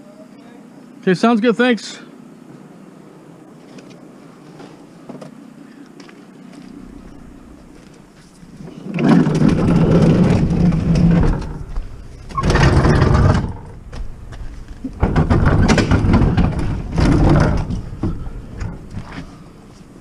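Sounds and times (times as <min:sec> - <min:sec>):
refrigerator scraping over ground: 0:06.8 - 0:19.4.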